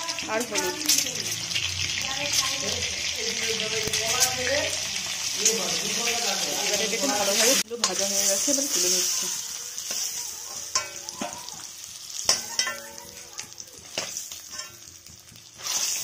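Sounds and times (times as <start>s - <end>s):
eggs sizzling in oil: 0.0s - 16.0s
spatula tapping and scraping pan: 9.8s - 16.0s.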